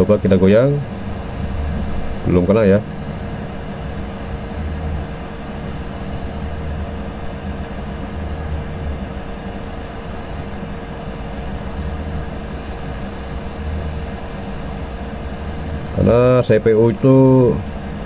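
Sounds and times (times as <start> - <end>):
uneven low rumble: 0.0 - 9.4
hot air station hissing: 0.0 - 18.0.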